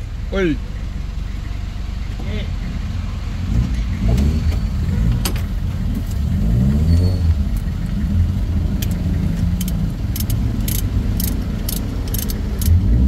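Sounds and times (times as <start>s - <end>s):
diesel engine running: 0.0s - 13.0s
sharp metallic clicks: 8.6s - 12.9s.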